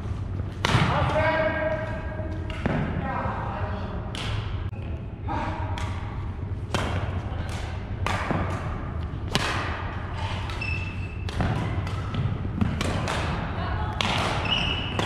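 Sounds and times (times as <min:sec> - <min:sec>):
low hum of gym: 0:00.0 - 0:15.0
rackets striking shuttlecocks: 0:00.5 - 0:03.0, 0:05.7 - 0:15.0.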